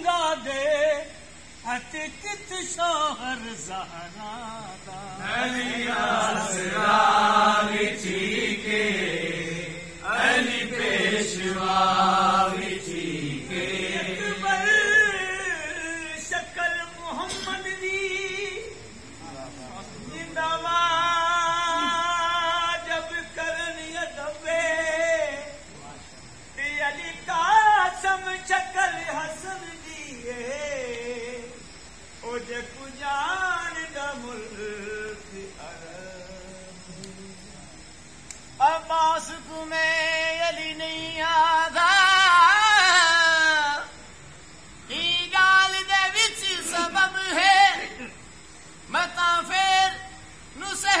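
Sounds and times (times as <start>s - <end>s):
man singing: 0.0s - 8.7s, 12.4s - 18.8s, 20.1s - 25.7s, 26.6s - 37.4s, 38.6s - 44.0s, 44.9s - 48.2s, 48.9s - 51.0s
high solo singing voice: 44.9s - 48.2s.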